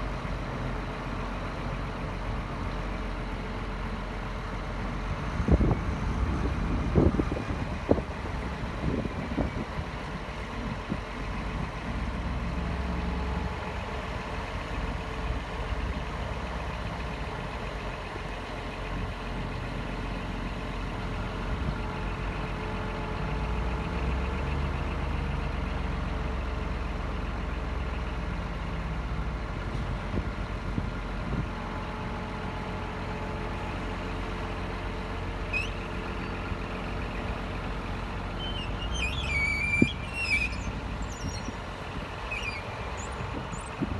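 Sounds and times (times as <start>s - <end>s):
diesel truck engine running: 0.0s - 43.9s
faint hydraulic whine: 31.3s - 43.9s.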